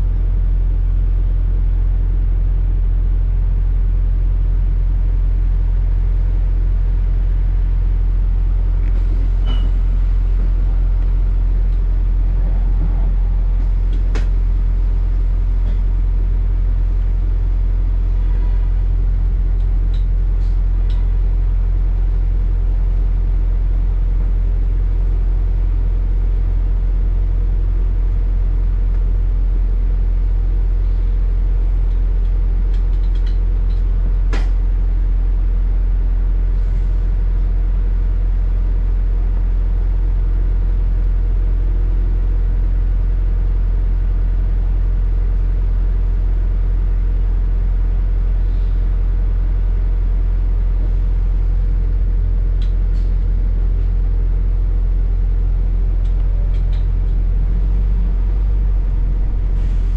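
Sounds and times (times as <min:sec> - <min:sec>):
bus engine and road rumble: 0:05.1 - 0:35.7, 0:36.4 - 0:41.4, 0:49.6 - 0:59.9.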